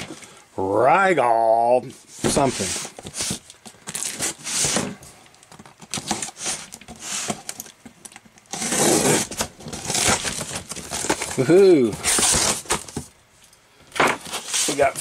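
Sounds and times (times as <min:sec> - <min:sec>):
cardboard rubbing: 0:02.0 - 0:05.0, 0:08.5 - 0:13.0
box cutter slitting packing tape: 0:08.5 - 0:13.0.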